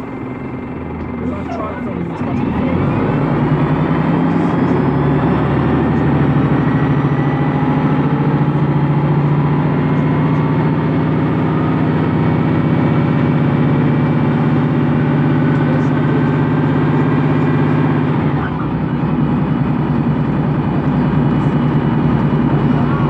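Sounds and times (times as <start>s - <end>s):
bus diesel engine running: 0.0s - 23.0s.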